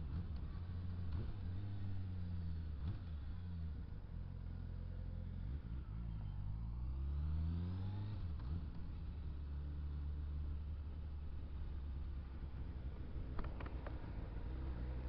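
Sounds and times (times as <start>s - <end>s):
wind and road noise: 0.0s - 15.0s
motorcycle engine revving: 7.0s - 15.0s.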